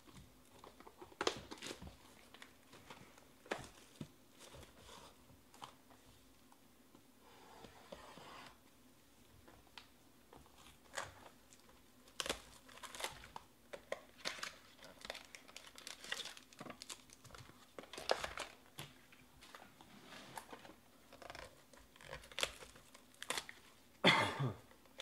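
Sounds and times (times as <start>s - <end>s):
plastic wrappers crinkling and tearing: 10.6s - 19.6s, 20.4s - 23.8s.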